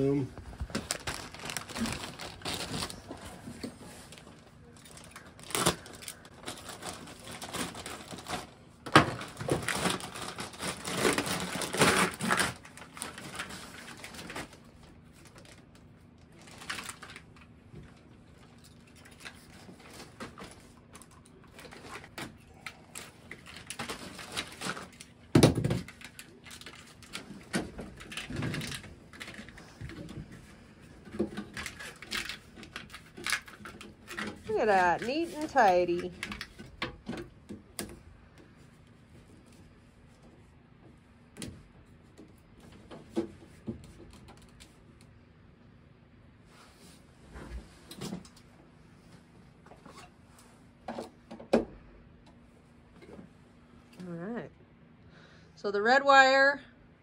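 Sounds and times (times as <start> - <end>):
plastic packaging crinkling: 0.0 - 37.2
plastic clicks and rustles: 0.4 - 38.0.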